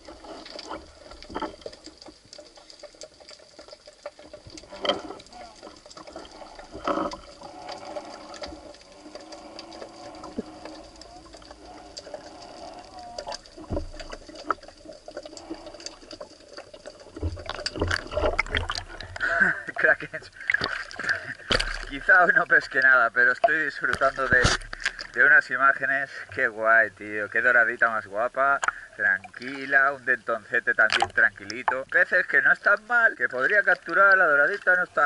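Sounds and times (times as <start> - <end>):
low thumps and splashing: 0.0 - 25.4
underwater clicks and crackles: 0.0 - 35.0
underwater water wash: 0.0 - 35.0.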